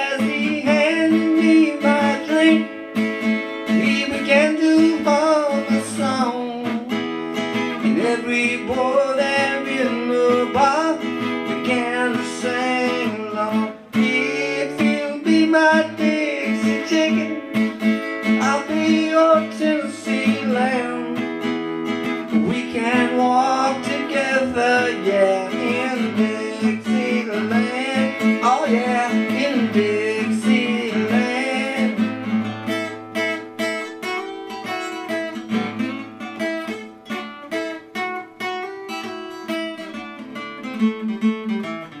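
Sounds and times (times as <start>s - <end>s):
man singing wordlessly: 0.0s - 2.9s, 3.6s - 21.5s, 22.2s - 32.5s
acoustic guitar strumming: 0.0s - 42.0s
guitar picked strokes: 0.0s - 42.0s.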